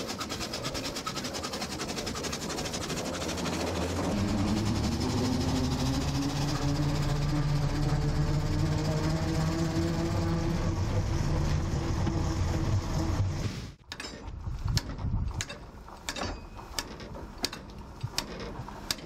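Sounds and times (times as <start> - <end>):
fire rake clinking and scraping: 15.4 - 18.9.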